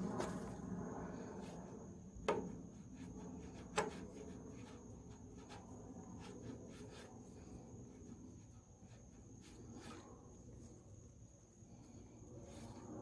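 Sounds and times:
light rubbing: 0:02.3 - 0:10.3.

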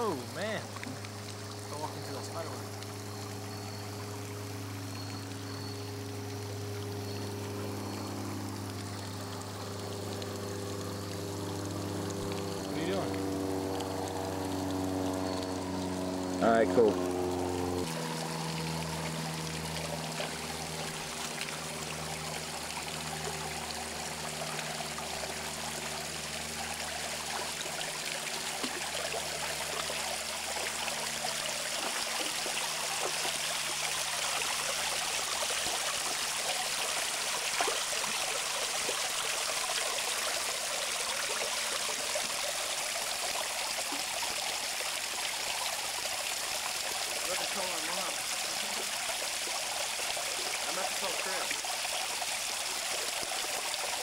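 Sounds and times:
creek water running over rocks: 0:00.0 - 0:54.0.

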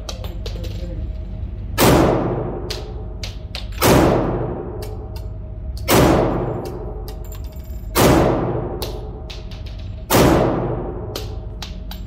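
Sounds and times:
pistol shots echoing indoors: 0:01.8 - 0:12.0.

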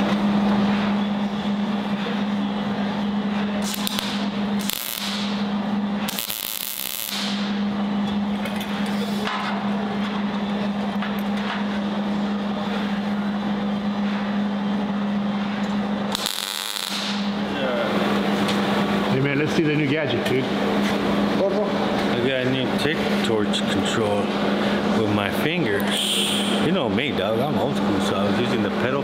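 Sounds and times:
welder buzzing arc: 0:03.6 - 0:07.6, 0:16.1 - 0:17.4, 0:25.9 - 0:26.7.

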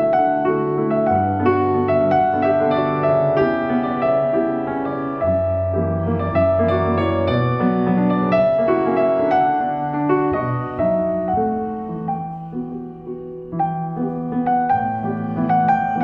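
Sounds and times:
slow piano melody: 0:00.0 - 0:16.0.

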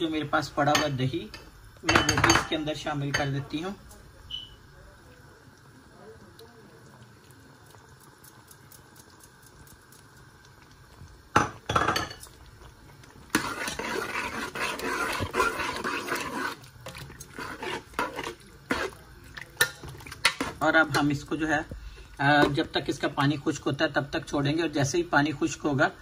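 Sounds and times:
spoon tapping pot: 0:01.8 - 0:03.4
spoon scraping and sloshing: 0:11.5 - 0:21.4.

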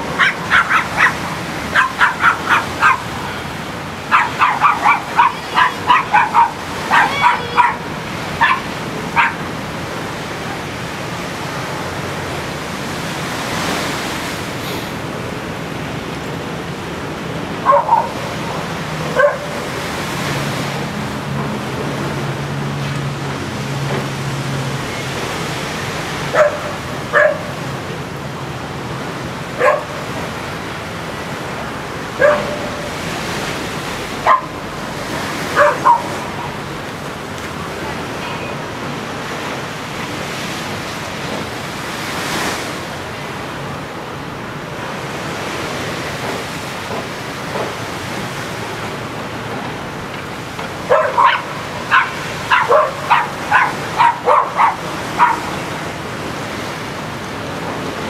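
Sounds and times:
small waves on shore: 0:00.0 - 0:58.0
dog barking: 0:00.2 - 0:03.1, 0:04.1 - 0:09.4, 0:17.6 - 0:18.2, 0:19.1 - 0:19.6, 0:26.3 - 0:27.5, 0:29.6 - 0:30.1, 0:32.2 - 0:32.9, 0:34.2 - 0:34.6, 0:35.5 - 0:36.3, 0:50.8 - 0:55.6.

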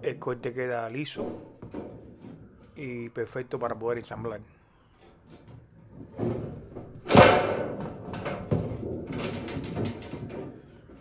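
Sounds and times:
sheet metal rattling and crinkling: 0:00.0 - 0:02.9, 0:05.0 - 0:11.0
sheet metal clattering: 0:05.3 - 0:11.0.

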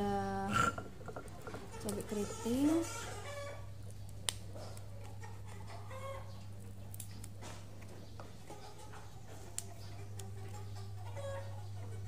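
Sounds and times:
steady low hum: 0:00.0 - 0:12.0
handling chilies on stone mortar: 0:00.5 - 0:03.1.

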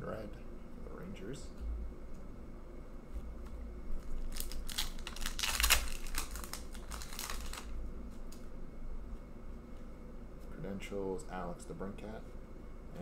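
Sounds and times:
foil wrapper crinkling and tearing: 0:04.0 - 0:07.8.

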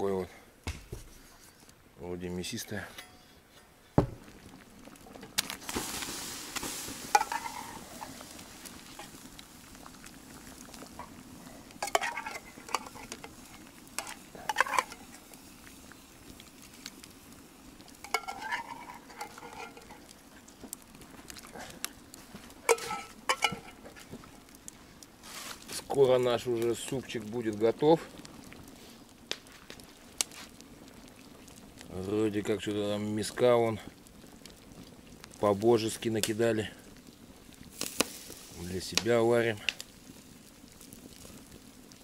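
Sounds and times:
hissing rush: 0:05.6 - 0:09.1
spoon scraping and clinking on metal: 0:11.8 - 0:13.2, 0:14.0 - 0:15.0, 0:18.1 - 0:20.0, 0:22.7 - 0:23.8.

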